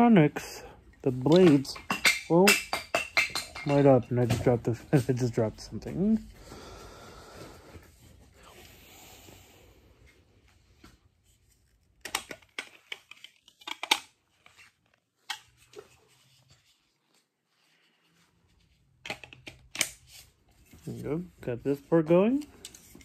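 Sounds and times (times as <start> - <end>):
plastic parts clicking: 12.0 - 14.2, 19.0 - 20.0.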